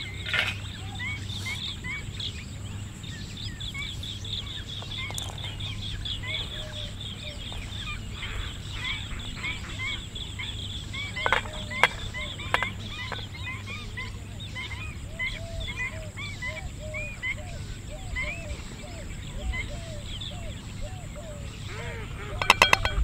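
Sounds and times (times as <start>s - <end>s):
birds chirping: 0.0s - 23.0s
low steady hum: 0.0s - 23.0s
garlic clicking into metal bowl: 22.4s - 23.0s.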